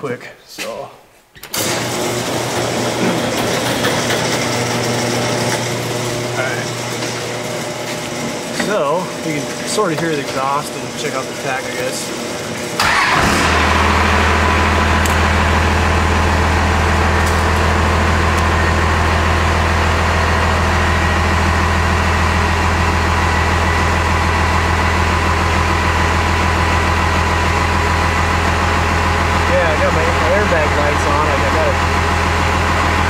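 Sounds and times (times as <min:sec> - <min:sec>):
diesel engine idling: 0:12.7 - 0:33.0.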